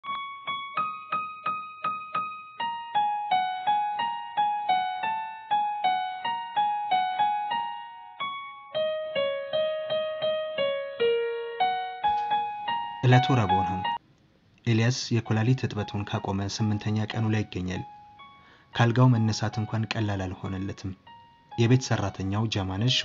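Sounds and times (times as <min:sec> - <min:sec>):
slow keyboard melody: 0:00.0 - 0:14.0, 0:15.1 - 0:23.0.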